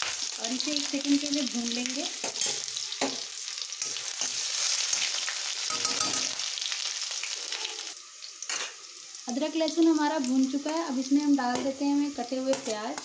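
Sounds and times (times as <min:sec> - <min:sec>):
paste sizzling in hot oil: 0:00.0 - 0:13.0
spoon knocking against pan: 0:05.7 - 0:06.4.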